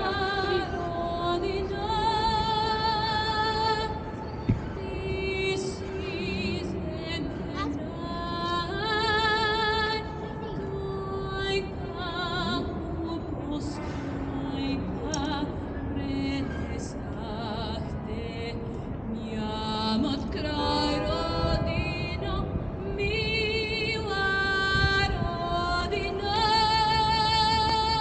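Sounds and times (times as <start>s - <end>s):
voices singing with vibrato: 20.0s - 24.8s.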